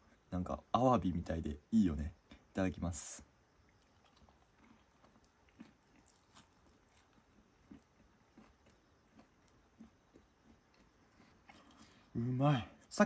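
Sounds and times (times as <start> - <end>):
chewing crunchy food: 3.7 - 12.2.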